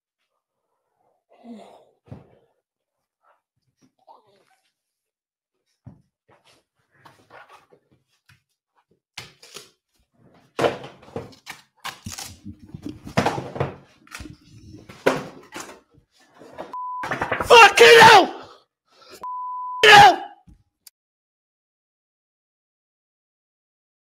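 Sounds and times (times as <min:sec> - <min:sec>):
steady beep tone: 0:16.8 - 0:17.1, 0:19.2 - 0:19.8.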